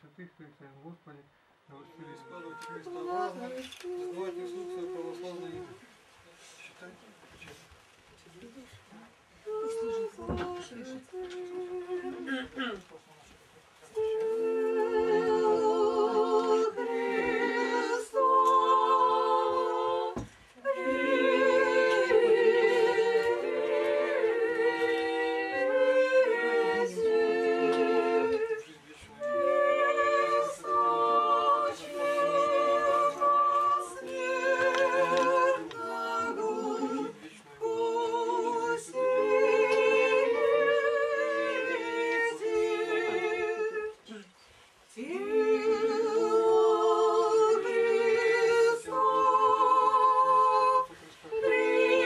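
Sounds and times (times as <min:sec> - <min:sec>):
unaccompanied church chant singing: 0:01.7 - 0:06.5, 0:09.4 - 0:13.0, 0:13.8 - 0:52.0.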